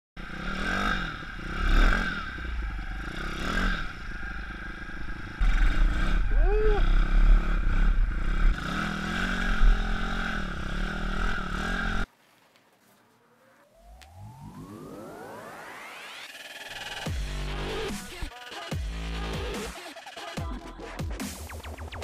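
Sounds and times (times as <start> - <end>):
motorbike engine revving: 0.2 - 12.1.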